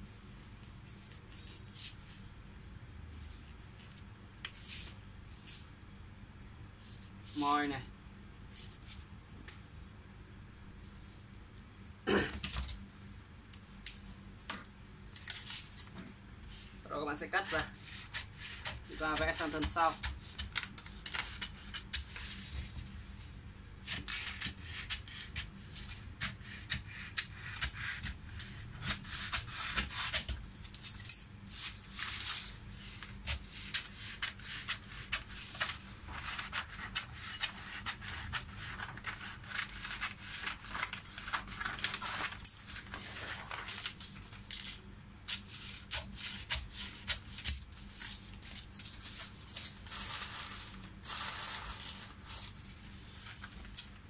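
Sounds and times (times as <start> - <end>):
paper rustling and crackling: 15.1 - 16.0, 28.4 - 44.8, 45.4 - 53.9
shears snipping paper: 17.4 - 22.2.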